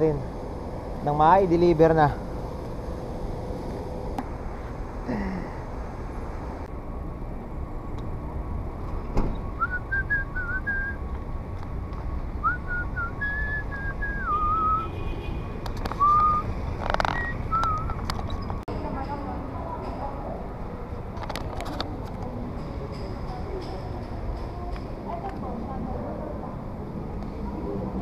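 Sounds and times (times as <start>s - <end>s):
traffic noise: 0.0s - 28.0s
wind: 0.0s - 28.0s
person whistling a tune: 9.6s - 11.0s, 12.4s - 14.9s, 16.0s - 16.5s, 17.2s - 18.0s.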